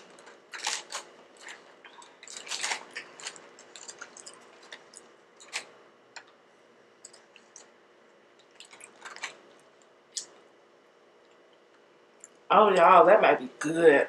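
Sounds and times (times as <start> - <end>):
paper crinkling and rustling: 0.0 - 5.7
sticky food squishes: 0.0 - 6.4, 7.0 - 10.5.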